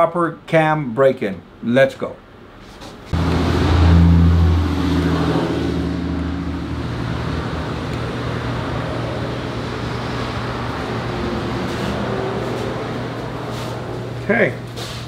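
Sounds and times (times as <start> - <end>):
engine running steadily: 3.1 - 15.0.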